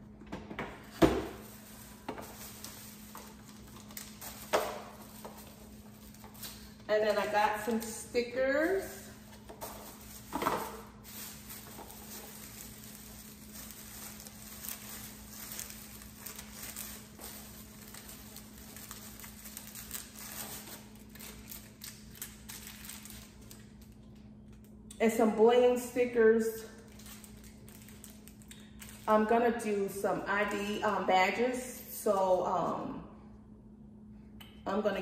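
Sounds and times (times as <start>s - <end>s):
steady low hum: 0.0s - 35.0s
plastic bag rustling: 0.8s - 24.0s, 26.8s - 29.2s.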